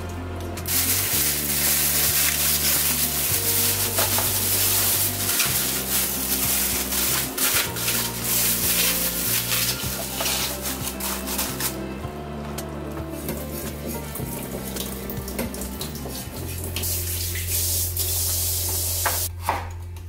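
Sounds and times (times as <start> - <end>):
music with long low notes: 0.0 - 20.0
plastic bag crinkling: 0.7 - 11.8.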